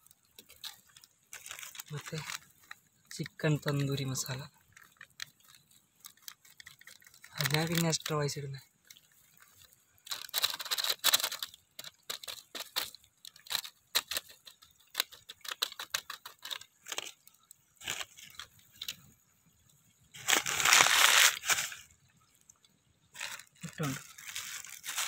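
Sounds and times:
plastic packet crinkling: 0:00.2 - 0:19.0, 0:20.2 - 0:21.9, 0:23.1 - 0:25.0.

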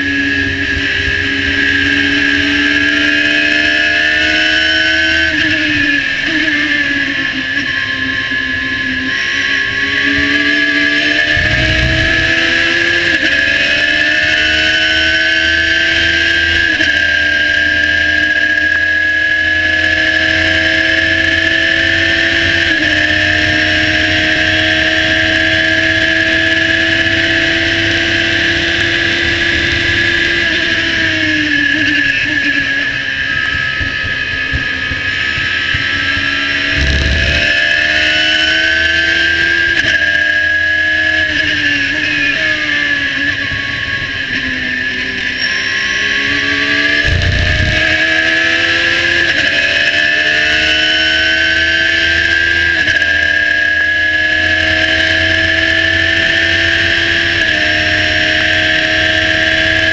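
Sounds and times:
race car engine screaming: 0:00.0 - 0:59.9
short low thump: 0:11.2 - 0:13.3, 0:47.0 - 0:48.4.

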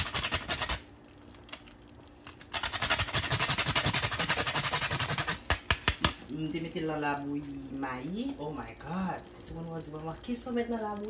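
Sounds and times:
hand grater rasping: 0:02.5 - 0:05.5.

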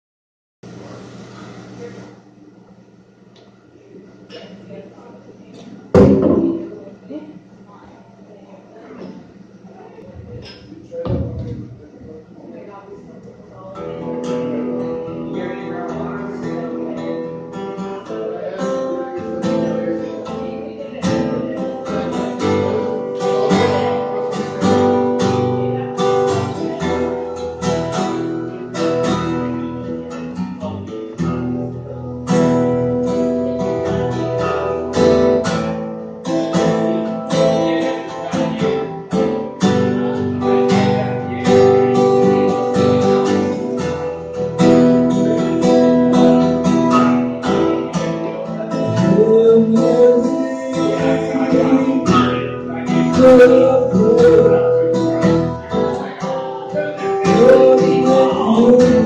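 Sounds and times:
acoustic guitar strumming chords: 0:06.0 - 0:07.0, 0:13.6 - 0:59.0.

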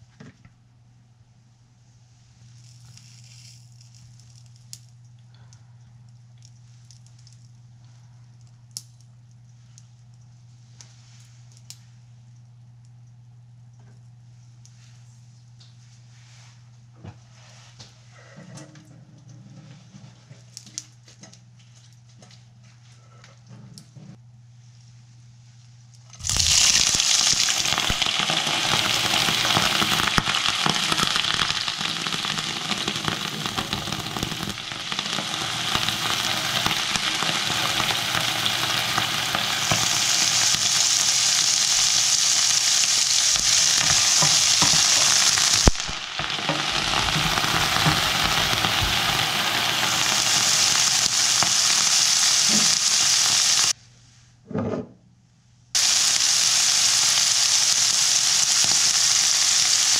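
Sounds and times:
food sizzling in hot oil: 0:26.2 - 0:53.8, 0:55.8 - 0:59.9.

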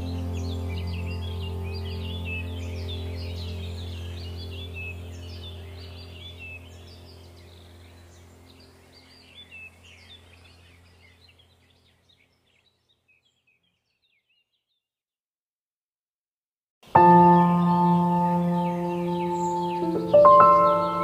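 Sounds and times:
low steady drone: 0:00.0 - 0:11.6, 0:17.0 - 0:21.0
birds chirping: 0:00.0 - 0:14.9, 0:16.9 - 0:21.0.

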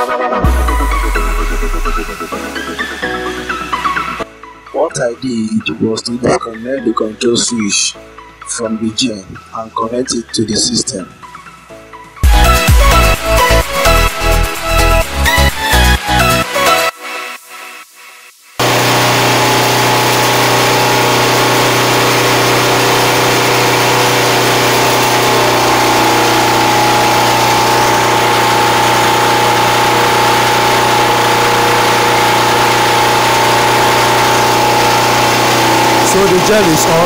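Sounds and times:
generator engine running: 0:00.4 - 0:04.2, 0:18.6 - 0:37.0.

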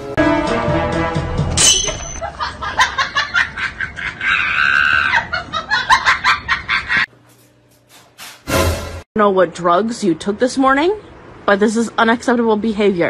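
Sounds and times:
person laughing hard: 0:02.2 - 0:07.1.

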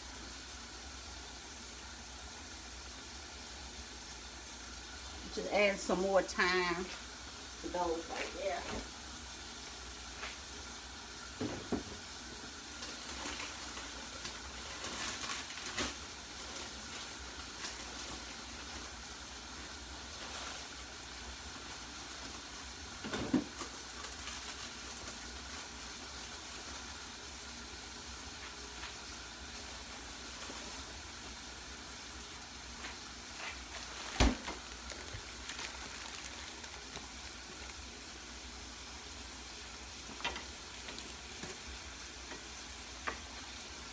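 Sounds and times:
meat sizzling in a skillet: 0:00.0 - 0:43.9.

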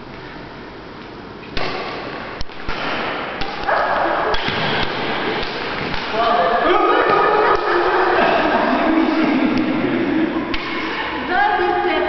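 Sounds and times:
echoing sports hall noise: 0:00.0 - 0:12.0
rackets striking shuttlecock: 0:01.6 - 0:06.2.

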